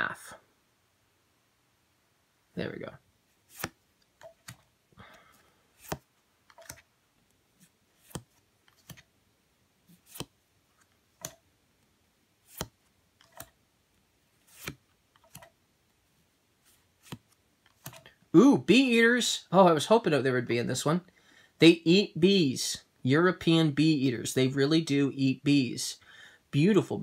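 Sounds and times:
cards flipping with clicks: 3.4 - 4.7, 5.8 - 6.9, 8.0 - 9.1, 9.9 - 11.4, 12.5 - 13.6, 14.4 - 15.6, 17.0 - 18.2.

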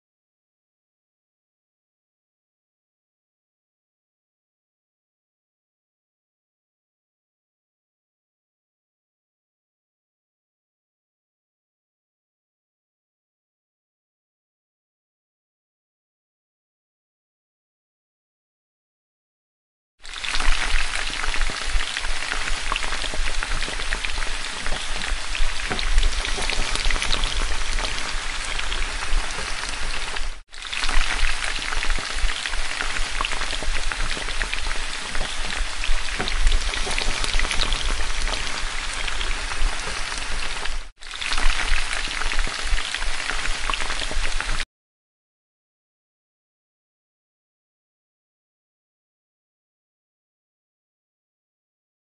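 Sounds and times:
batter deep-frying in hot oil: 20.0 - 44.7.

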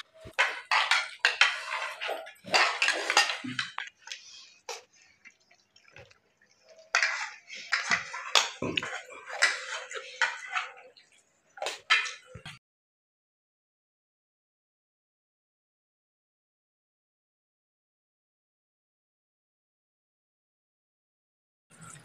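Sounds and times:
cutlery clinking on plates: 0.0 - 4.0, 6.7 - 11.0, 11.6 - 12.6.

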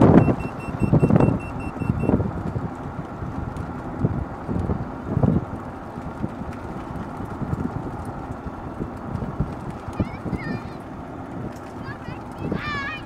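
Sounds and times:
short high beeps: 0.0 - 2.1
tyres rumbling on road: 0.0 - 13.0
wind buffeting microphone: 0.0 - 13.0.

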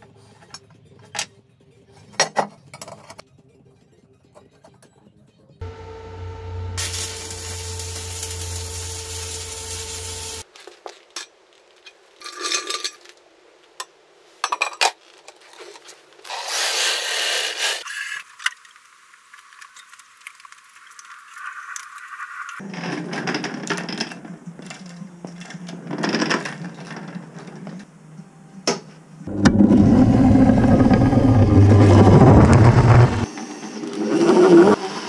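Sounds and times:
steel parts clanking and scraping: 11.0 - 13.2
machine whirring: 29.3 - 34.0.

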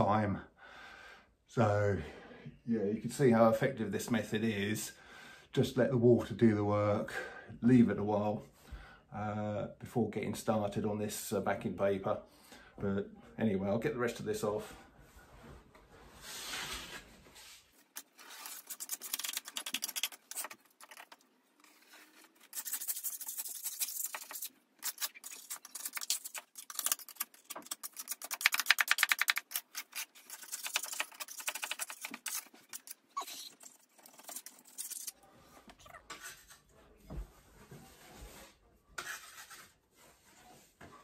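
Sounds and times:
paper tearing: 17.9 - 35.2
metal scraper rasping on wall: 18.0 - 32.9.

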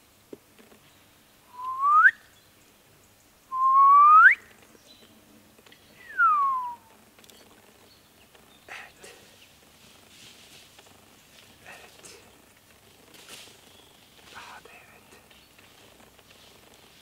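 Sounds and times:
person whistling sliding notes: 1.5 - 2.2, 6.1 - 6.9.

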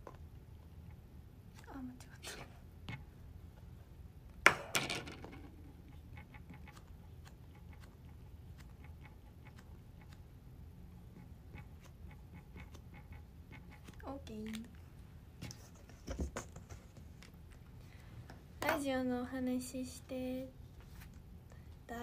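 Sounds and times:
pen writing on paper: 11.1 - 14.0.

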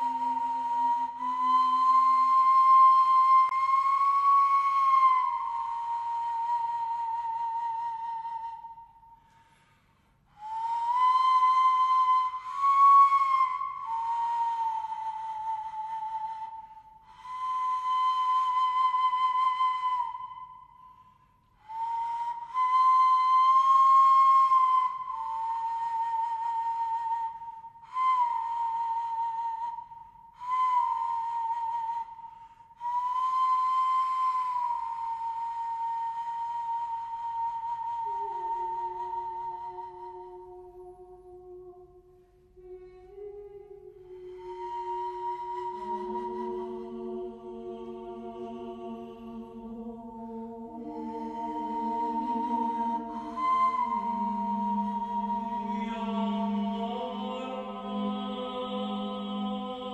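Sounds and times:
flute playing long high notes: 0.0 - 59.9.

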